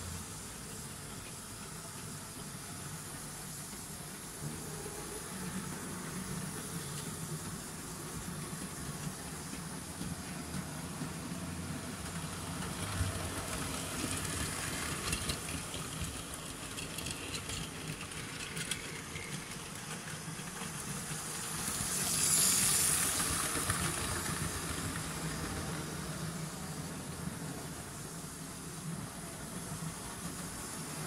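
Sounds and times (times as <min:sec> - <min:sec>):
hiss: 0:00.0 - 0:31.0
model train motors humming: 0:00.0 - 0:31.0
wheels clicking on track: 0:06.1 - 0:27.0.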